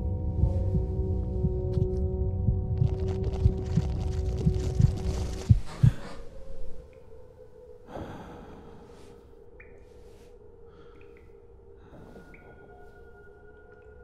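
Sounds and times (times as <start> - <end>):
low drone: 0.0 - 9.6.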